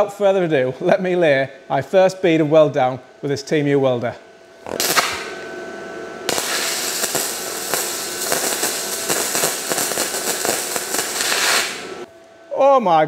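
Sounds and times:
welding arc crackling: 4.6s - 5.4s, 6.3s - 12.1s
sharp welding pops: 4.6s - 5.5s, 6.3s - 12.1s.

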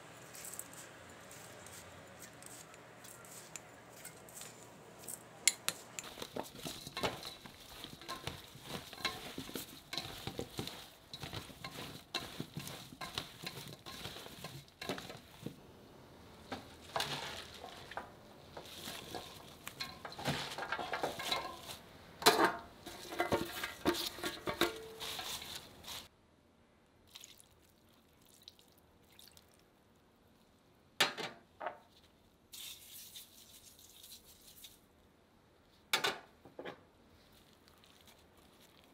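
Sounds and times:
vegetable chunks tumbling in metal bowl: 6.0s - 15.6s, 16.4s - 26.1s.

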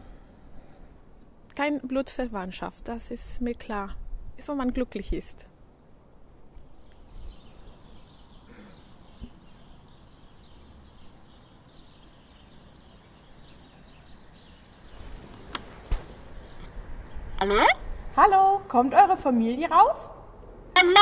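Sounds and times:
distant birds chirping: 6.2s - 19.8s.

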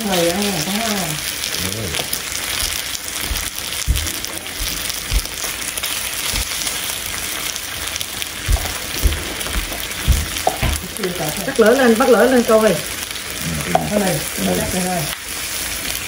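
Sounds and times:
beef sizzling in a pan: 0.0s - 16.0s
dull low knocks: 2.6s - 5.6s, 6.3s - 6.6s, 8.4s - 10.9s.

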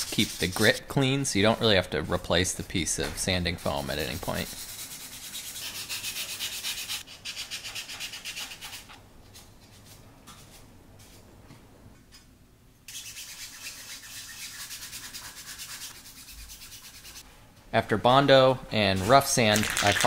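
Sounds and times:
wet sanding rasping strokes: 0.0s - 0.8s, 3.5s - 8.7s, 12.9s - 17.2s.

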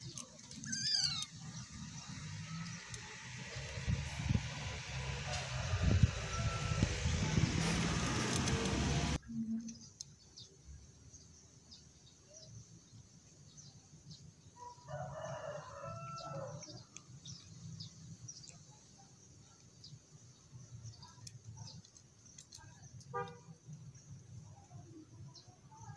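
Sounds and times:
loud rushing noise: 3.2s - 9.2s
rooster crowing: 5.0s - 8.1s, 14.6s - 16.6s
cat eating from bowl: 21.2s - 24.5s.

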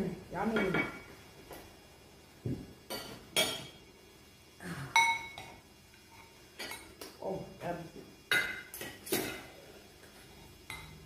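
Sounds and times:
cutlery clinking on plates: 2.9s - 3.8s, 5.0s - 7.0s, 8.3s - 11.0s.

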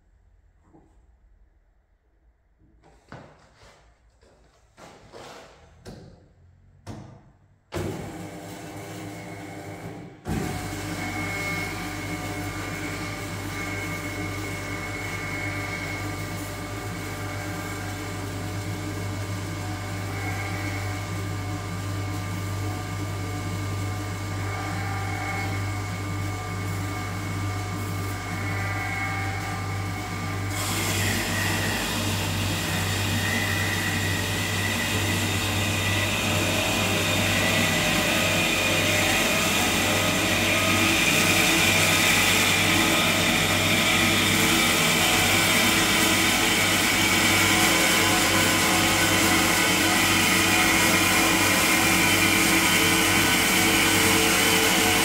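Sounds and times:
bandsaw humming: 10.3s - 55.0s.

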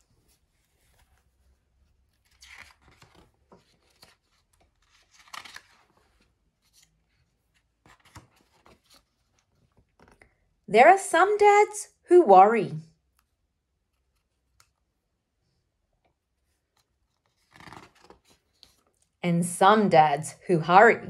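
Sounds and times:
book pages turning: 0.0s - 10.4s, 13.1s - 15.0s, 16.0s - 19.2s.

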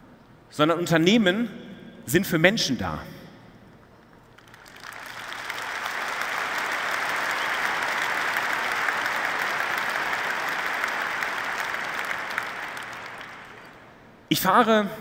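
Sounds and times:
large audience applauding: 4.2s - 14.1s.

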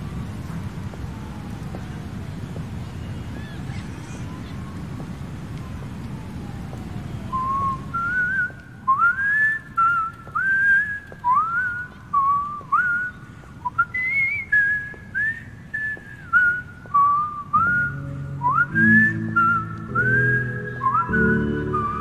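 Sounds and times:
whistled melody: 7.3s - 22.0s.

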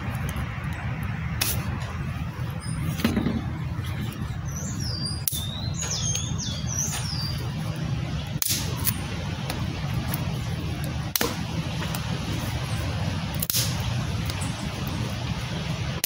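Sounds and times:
dry sticks snapping: 0.0s - 2.0s, 5.2s - 7.5s, 8.2s - 12.6s, 13.3s - 15.0s
bird chirping: 2.2s - 8.3s, 14.2s - 15.0s.

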